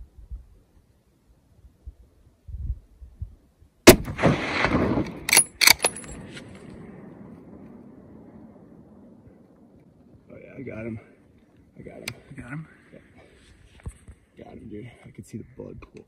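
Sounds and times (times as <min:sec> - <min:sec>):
rifle shot echoing: 0:03.8 - 0:10.1
rifle bolt clicks: 0:05.3 - 0:06.2.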